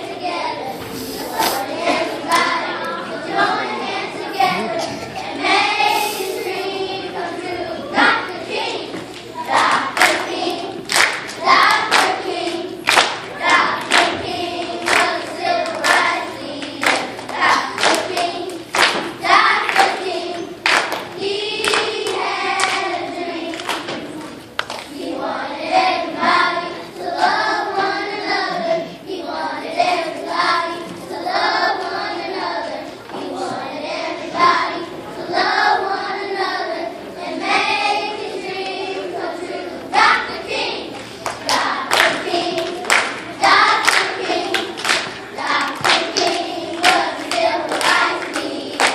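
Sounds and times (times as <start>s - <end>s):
children's choir singing: 0.0s - 48.9s
hand claps on a beat: 9.7s - 12.2s, 12.8s - 13.2s, 13.8s - 14.2s, 14.8s - 20.0s, 20.6s - 22.8s, 23.5s - 24.0s, 41.2s - 48.9s.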